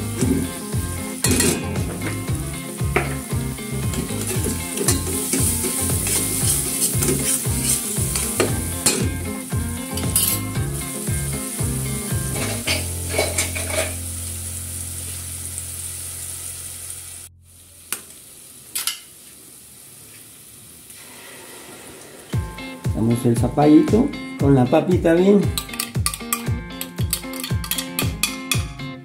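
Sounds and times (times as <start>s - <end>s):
onion sizzling in hot oil: 0.0s - 22.4s
spoon stirring and scraping pot: 3.9s - 9.2s, 12.3s - 14.0s, 25.6s - 28.6s.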